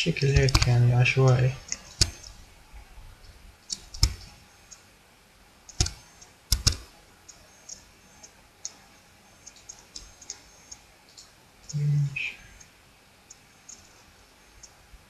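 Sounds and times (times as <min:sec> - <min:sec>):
keyboard ticks: 0:00.2 - 0:02.4, 0:03.7 - 0:04.8, 0:05.7 - 0:08.8, 0:09.4 - 0:12.0
computer mouse clicks: 0:00.3 - 0:02.4, 0:03.7 - 0:04.8, 0:05.7 - 0:07.8, 0:09.4 - 0:11.8.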